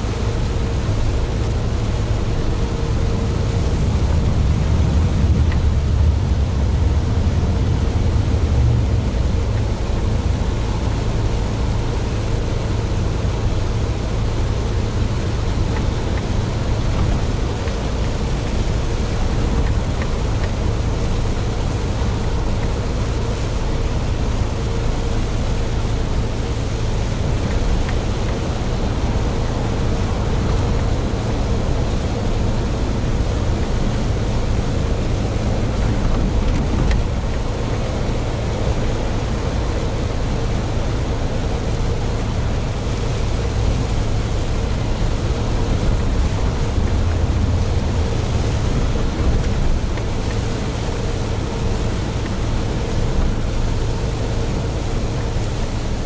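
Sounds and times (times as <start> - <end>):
faint steady whine: 0.0 - 56.0
truck engine drone: 0.0 - 56.0
tyre hiss on wet road: 9.1 - 56.0.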